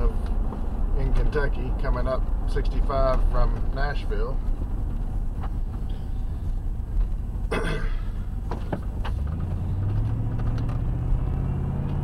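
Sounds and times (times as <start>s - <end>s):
car engine accelerating: 0.0s - 12.0s
road noise inside car: 0.0s - 12.0s.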